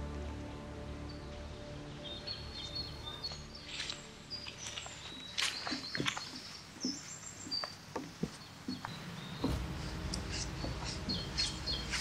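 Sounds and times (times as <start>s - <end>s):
small birds chirping: 1.0s - 12.0s
footsteps on wooden boardwalk: 3.2s - 12.0s.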